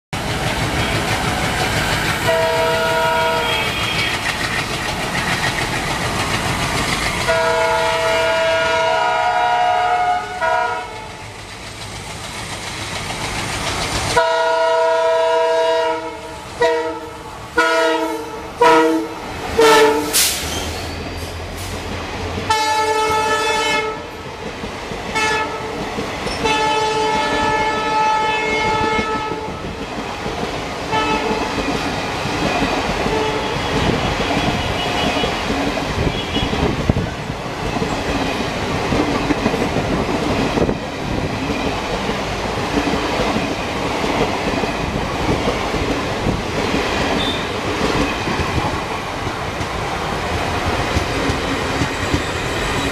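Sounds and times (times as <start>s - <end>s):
train rumble and wheel clatter: 0.1s - 52.9s
locomotive air horn honking: 2.2s - 4.3s, 7.3s - 11.2s, 14.2s - 20.5s, 22.5s - 24.1s, 25.2s - 25.7s, 26.4s - 29.6s, 30.9s - 31.4s, 33.0s - 36.7s.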